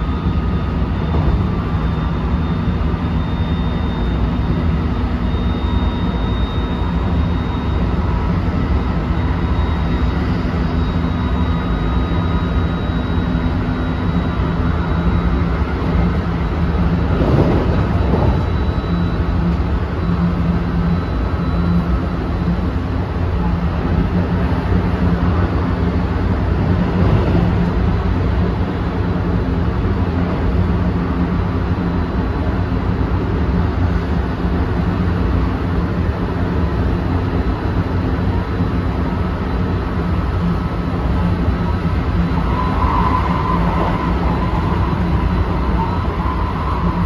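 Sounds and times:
train wheels rumbling on rail: 0.0s - 3.2s, 6.0s - 47.0s
high electric motor whine: 0.0s - 47.0s.

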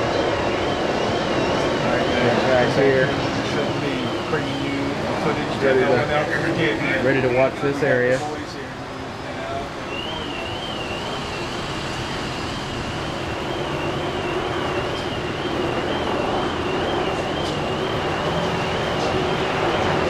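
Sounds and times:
warbling electronic alarm: 0.0s - 7.3s, 9.6s - 20.0s
engine hum: 0.0s - 20.0s
traffic noise: 0.0s - 20.0s.

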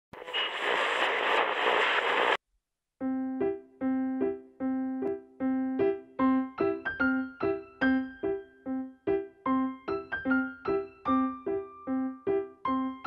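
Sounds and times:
burst of hiss-like noise: 0.2s - 2.4s
light keyboard music: 3.0s - 13.0s.

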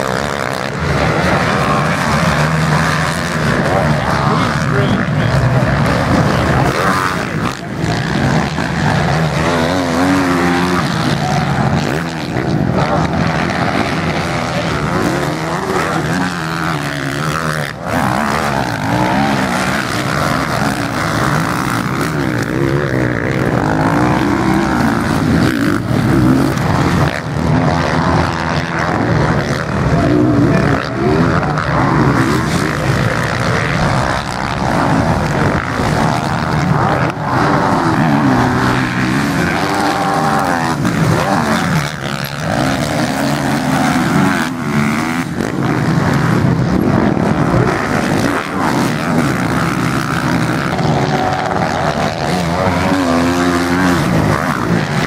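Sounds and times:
motocross bike engines revving: 0.0s - 55.0s.

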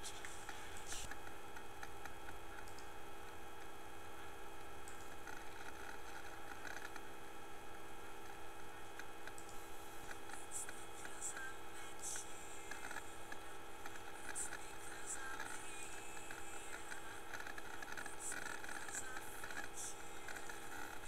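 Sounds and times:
electrical hum and hiss: 0.0s - 21.0s
faint clicks: 0.2s - 2.9s, 4.9s - 7.0s, 9.0s - 11.5s.

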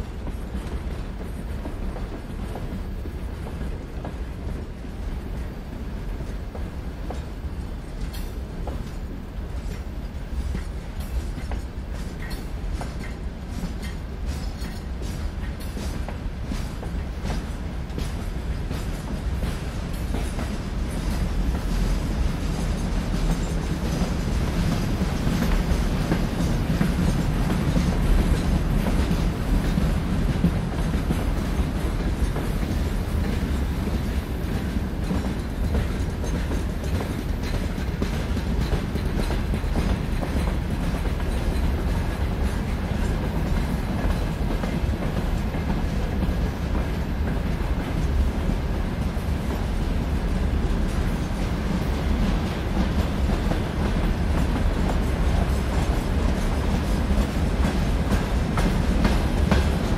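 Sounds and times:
freight train rumbling: 0.0s - 59.9s
wheels clicking over rail joints: 0.0s - 59.9s.

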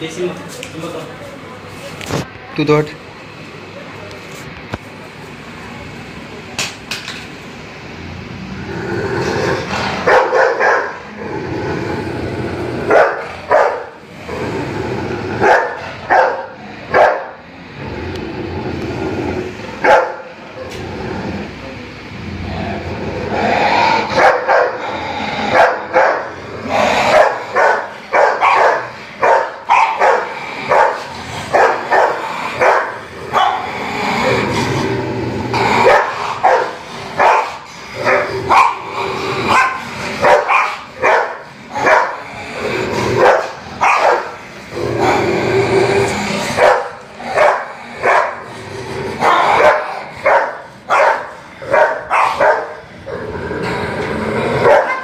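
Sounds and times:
dogs barking: 9.9s - 11.2s, 12.8s - 14.0s, 15.4s - 17.5s, 19.8s - 20.4s, 23.8s - 33.8s, 35.6s - 42.4s, 43.1s - 44.6s, 46.4s - 52.9s, 54.5s - 55.0s.

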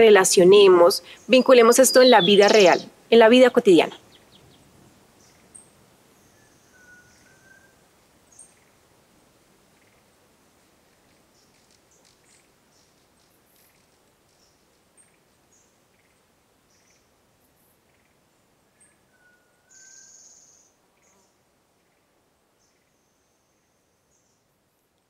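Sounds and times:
birds chirping: 0.0s - 7.7s.

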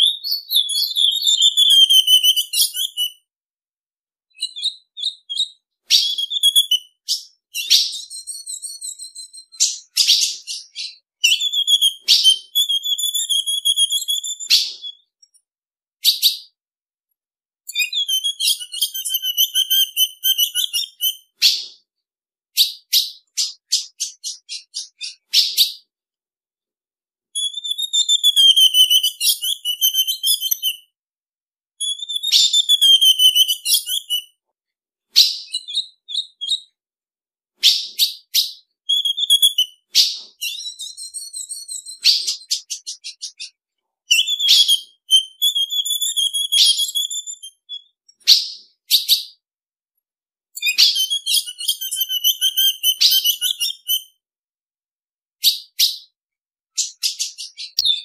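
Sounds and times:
bird whistled call: 0.0s - 3.2s, 4.4s - 15.1s, 17.7s - 21.8s, 22.6s - 25.8s, 27.4s - 30.9s, 31.8s - 34.3s, 37.6s - 49.3s, 50.6s - 54.1s.

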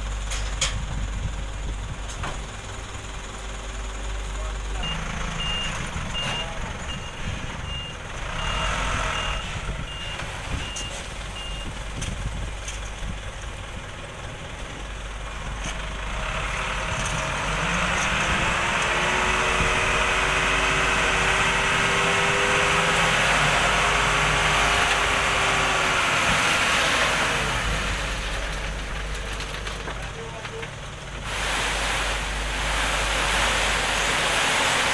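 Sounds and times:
diesel truck engine: 0.0s - 34.9s
reversing alarm beeping: 4.8s - 11.7s.

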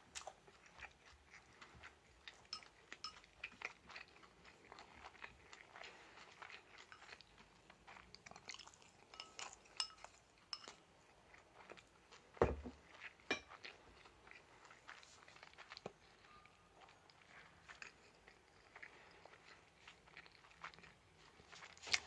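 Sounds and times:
quiet chewing: 0.0s - 22.0s
chopsticks scraping ceramic bowl: 9.0s - 10.8s
bowl thumping on wooden table: 12.4s - 12.8s.

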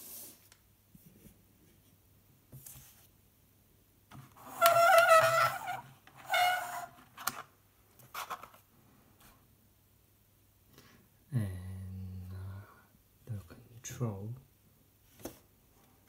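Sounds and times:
plastic shell squeaking: 4.3s - 7.5s.

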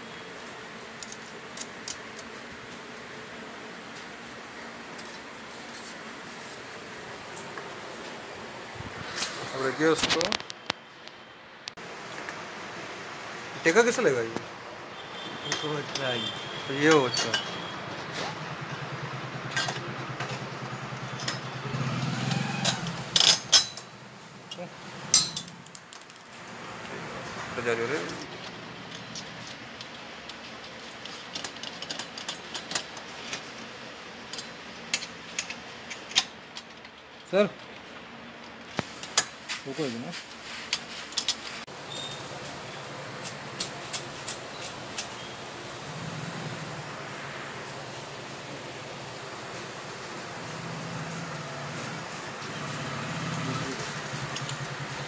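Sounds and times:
steady background hiss: 0.0s - 55.0s
small engine idling: 18.4s - 24.6s
metal tubes clicking and tapping: 24.5s - 26.2s.

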